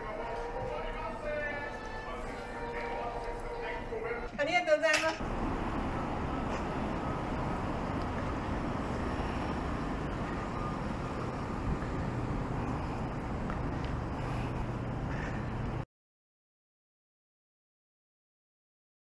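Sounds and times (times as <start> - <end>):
cars passing on road: 5.2 - 15.8.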